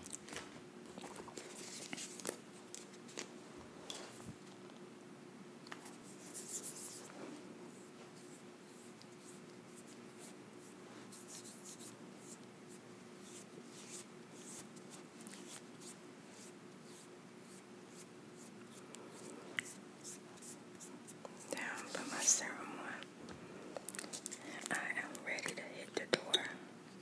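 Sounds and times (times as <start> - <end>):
fingertips rubbing cream on skin: 6.1 - 7.1, 7.7 - 21.2.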